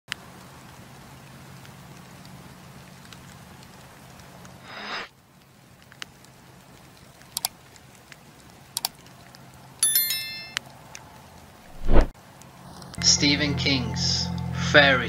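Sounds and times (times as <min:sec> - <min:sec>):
campfire crackles: 0:00.1 - 0:14.2
notification bell ding: 0:09.8 - 0:10.6.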